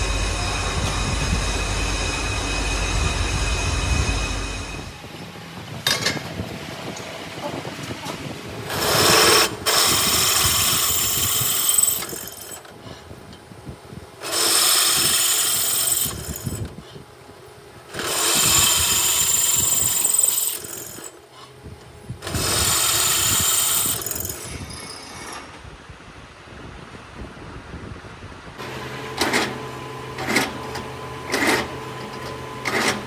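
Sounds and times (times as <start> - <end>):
drill press running: 0.0 - 5.0, 8.6 - 13.0, 14.2 - 17.0, 17.8 - 21.5, 22.2 - 25.6, 28.6 - 33.0
drill press grinding through metal: 8.6 - 12.9, 14.2 - 16.9, 17.9 - 21.2, 22.2 - 25.6, 28.6 - 33.0.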